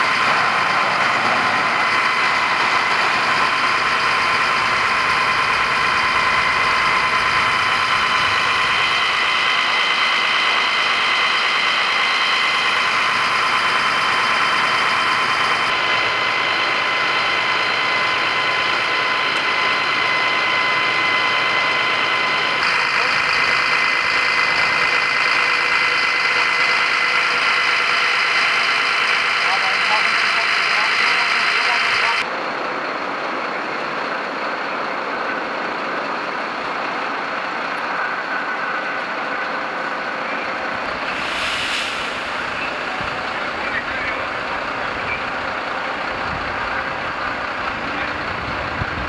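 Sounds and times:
high steady whine: 0:00.0 - 0:34.6, 0:35.3 - 0:49.0
diesel engines droning: 0:00.0 - 0:49.0.

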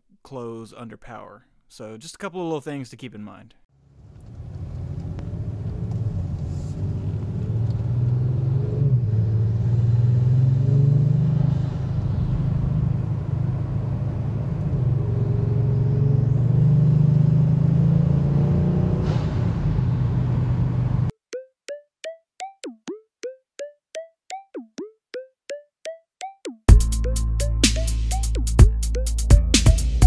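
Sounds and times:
car engine accelerating: 0:03.8 - 0:21.1.

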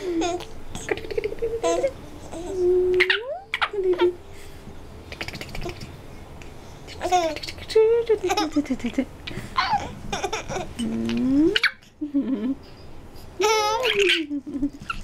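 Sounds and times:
baby babbling: 0:00.0 - 0:04.2
baby laughing and squealing: 0:06.9 - 0:07.7, 0:09.6 - 0:10.8, 0:13.4 - 0:15.0.

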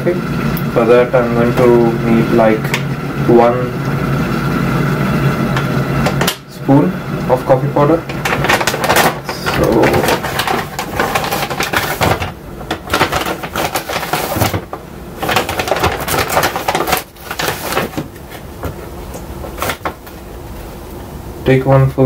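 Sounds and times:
coffee bag crinkling and rustling: 0:07.4 - 0:20.2.

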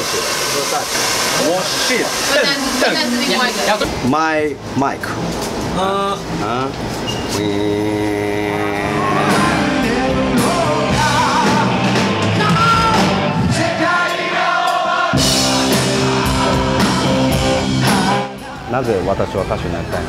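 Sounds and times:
person singing: 0:07.4 - 0:14.4, 0:15.4 - 0:18.8
rock song with band: 0:08.8 - 0:18.4.

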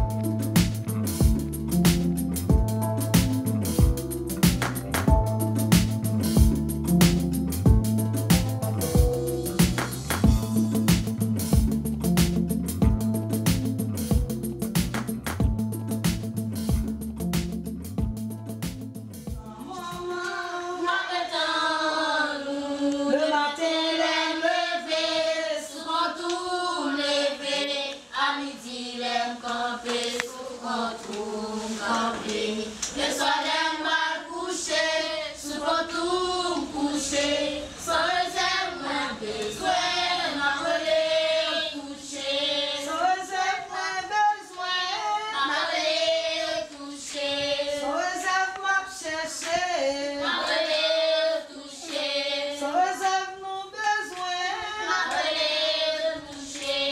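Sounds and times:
group of voices singing: 0:19.4 - 0:56.9.

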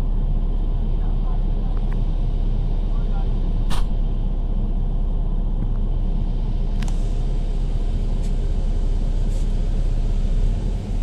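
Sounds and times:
bus low rumble: 0:00.0 - 0:11.0
sharp click: 0:03.7 - 0:03.9.

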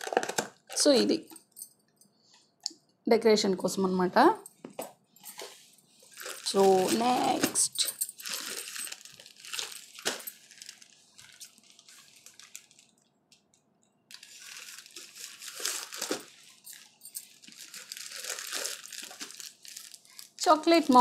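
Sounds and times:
plastic bag crinkling: 0:00.0 - 0:01.2, 0:05.3 - 0:13.2, 0:14.1 - 0:21.0.

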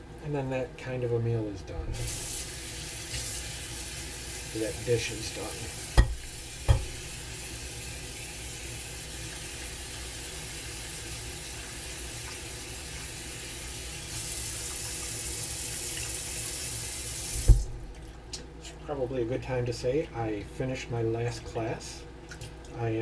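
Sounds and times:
faucet water rushing into sink: 0:01.9 - 0:17.8
knock: 0:06.0 - 0:06.9.

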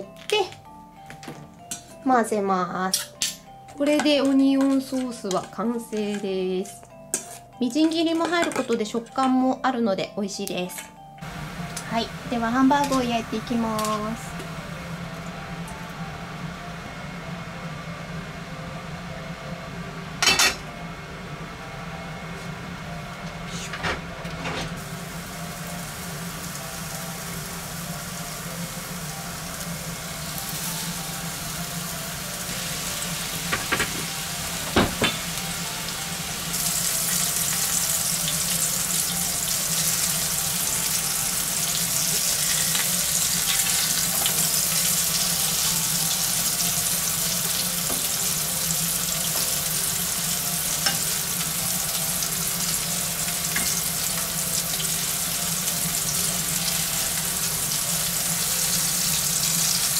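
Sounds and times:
patties sizzling in a frying pan: 0:24.8 - 0:59.9.

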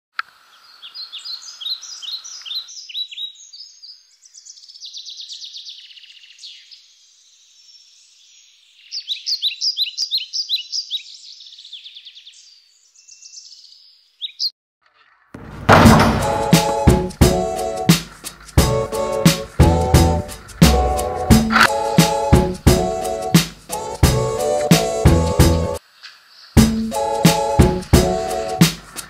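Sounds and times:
songbirds chirping and trilling: 0:00.2 - 0:29.0.

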